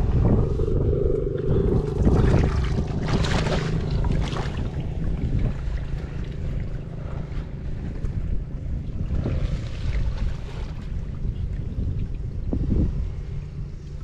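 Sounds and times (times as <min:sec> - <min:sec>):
wind on microphone: 0:00.0 - 0:14.0
splashing through shallow water: 0:01.8 - 0:08.1, 0:09.0 - 0:11.2.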